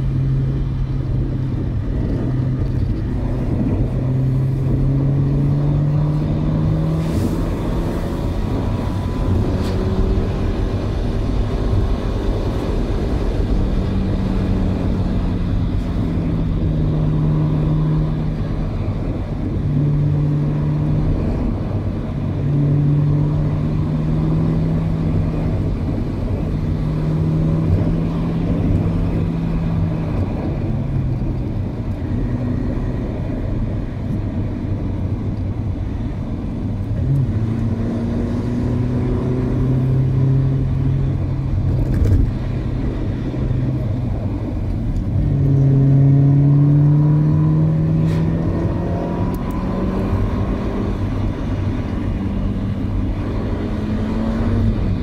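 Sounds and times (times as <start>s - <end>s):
car engine: 0.0s - 55.0s
road noise: 0.0s - 55.0s.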